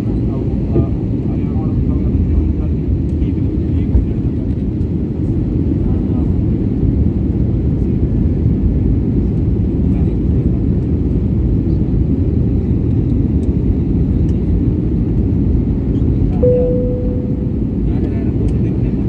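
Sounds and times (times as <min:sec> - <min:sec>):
airliner cabin engine rush: 0:00.0 - 0:19.0
steady tone: 0:16.4 - 0:18.0.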